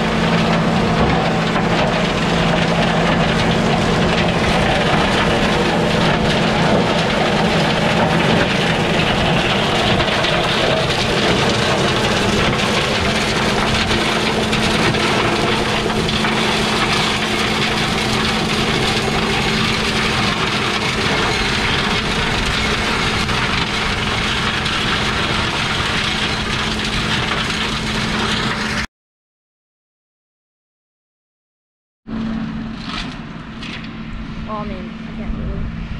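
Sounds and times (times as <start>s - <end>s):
tractor engine and rotor hum: 0.0s - 28.9s, 32.1s - 35.9s
branches crackling and clattering: 0.1s - 28.7s.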